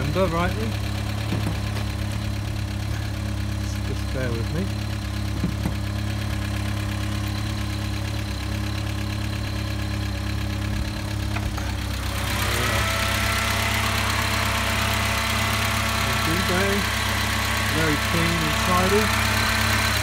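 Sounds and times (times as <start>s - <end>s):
van engine idling: 0.0s - 20.0s.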